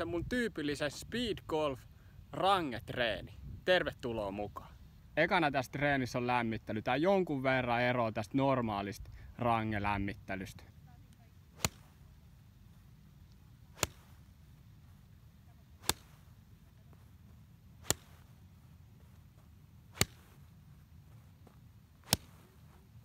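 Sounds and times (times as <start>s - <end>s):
golf club striking balls: 11.5s - 12.1s, 13.3s - 14.4s, 15.8s - 16.5s, 17.8s - 18.4s, 19.9s - 20.5s, 22.0s - 22.5s.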